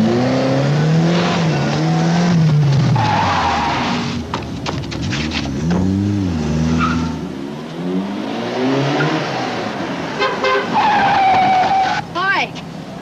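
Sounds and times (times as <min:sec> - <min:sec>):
car engine revving: 0:00.0 - 0:12.1
car horn toots: 0:10.2 - 0:11.8.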